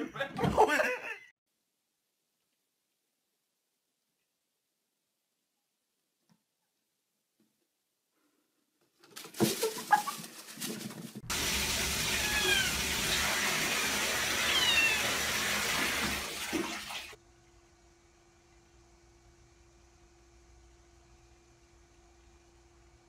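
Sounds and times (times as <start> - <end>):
toilet flushing: 11.2 - 17.2.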